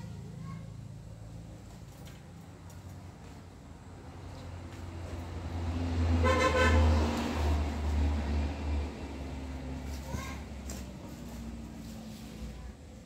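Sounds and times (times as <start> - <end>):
vehicle engine rumble passing: 0.0 - 13.0
short horn toot: 6.2 - 7.0.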